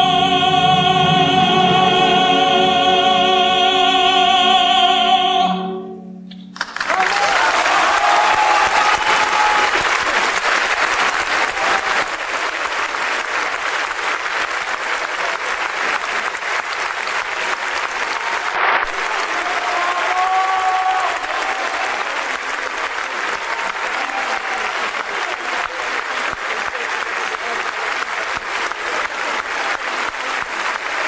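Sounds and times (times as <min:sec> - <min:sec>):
audience applauding: 0:06.5 - 0:31.0.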